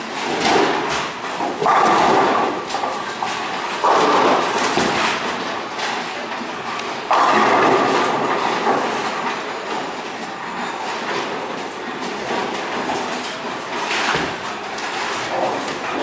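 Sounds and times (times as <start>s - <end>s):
bowling pins clattering: 0.0s - 16.0s
rolling balls and lane machinery: 0.0s - 16.0s
bowling ball crashing into pins: 0.2s - 6.0s, 6.9s - 9.9s.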